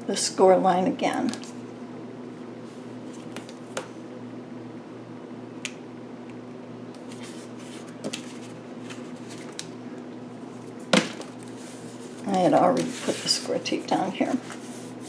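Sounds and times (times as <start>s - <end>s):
steady low hum: 0.0s - 15.0s
tape rustling: 7.0s - 9.8s.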